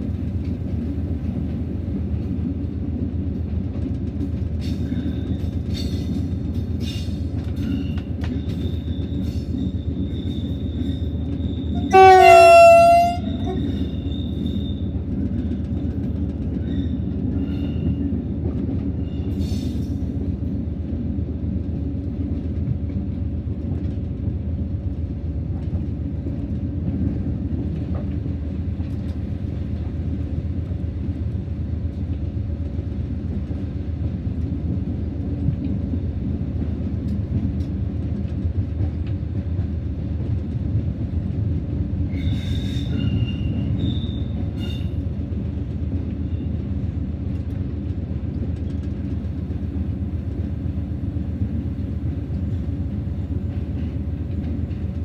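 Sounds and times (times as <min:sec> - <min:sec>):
locomotive engine and rail rumble: 0:00.0 - 0:55.0
train horn blast: 0:11.8 - 0:13.9.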